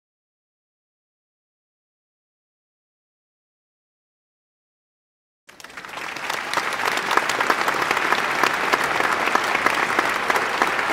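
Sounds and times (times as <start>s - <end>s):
audience applause: 5.5s - 10.9s.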